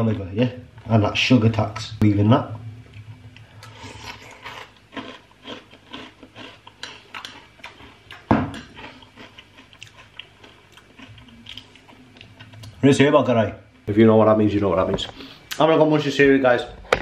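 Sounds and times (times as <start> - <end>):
cereal crunching while chewed: 3.6 - 12.8.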